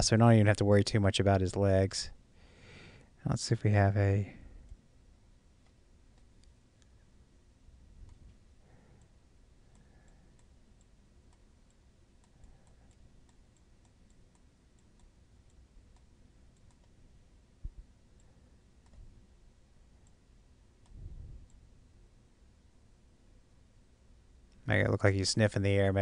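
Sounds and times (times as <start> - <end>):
computer mouse clicks: 5.6 - 7.0, 8.0 - 8.4, 9.7 - 17.0, 18.2 - 19.1, 20.8 - 21.6.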